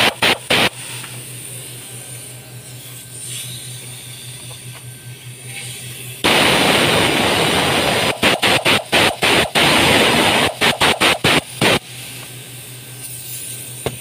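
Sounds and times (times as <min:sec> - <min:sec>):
pneumatic ratchet wrench hissing: 0:00.0 - 0:04.8, 0:07.8 - 0:14.0.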